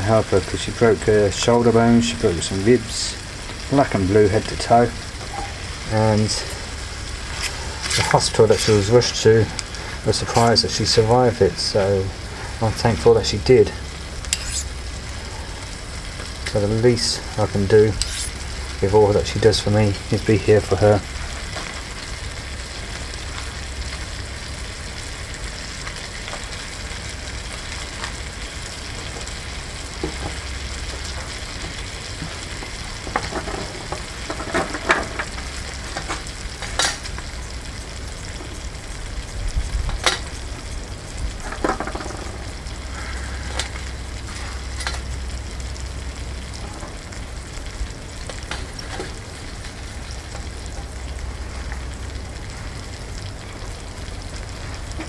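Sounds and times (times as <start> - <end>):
bacon sizzling in a frying pan: 0.0 - 55.0.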